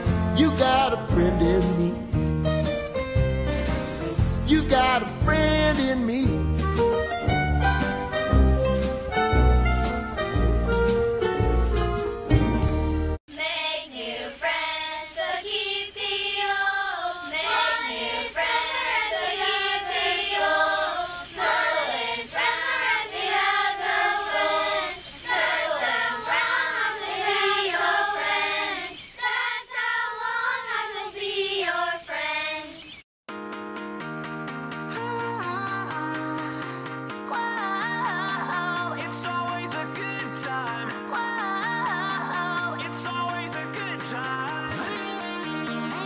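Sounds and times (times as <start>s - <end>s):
girls singing in unison: 13.3s - 32.8s, 37.3s - 39.0s, 41.1s - 42.8s.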